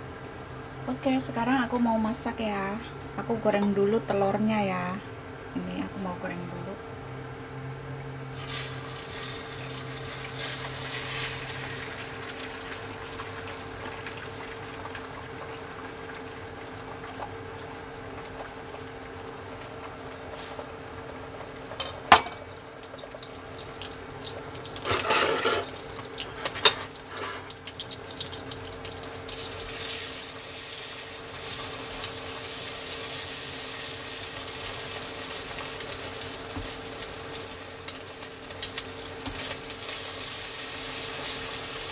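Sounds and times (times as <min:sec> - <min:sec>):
cooktop humming: 0:00.0 - 0:06.9, 0:07.8 - 0:41.9
eggs sizzling in hot oil: 0:08.3 - 0:41.9.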